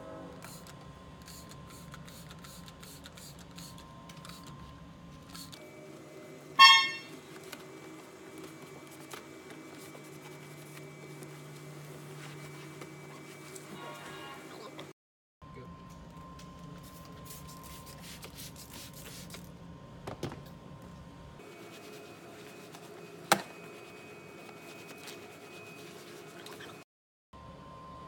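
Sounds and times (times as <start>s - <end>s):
car horn toot: 6.6s - 7.2s.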